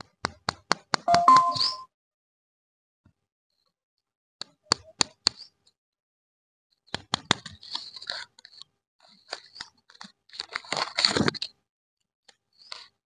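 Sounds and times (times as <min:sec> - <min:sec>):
paper wrapper crinkling: 0:09.2 - 0:11.5.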